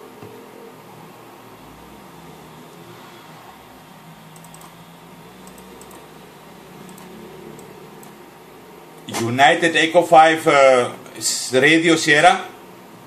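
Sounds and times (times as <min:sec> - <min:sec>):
keyboard keystrokes: 0:04.3 - 0:04.8, 0:06.8 - 0:08.2.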